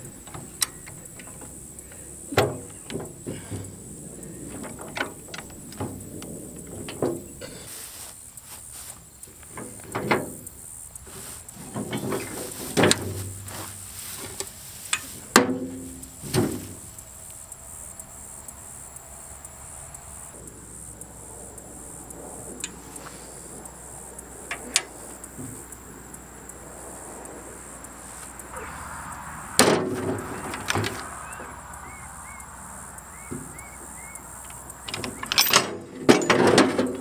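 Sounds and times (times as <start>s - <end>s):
metal jack clanking: 0.0s - 7.8s, 9.4s - 16.9s, 24.4s - 25.6s, 29.6s - 31.1s, 34.5s - 37.0s.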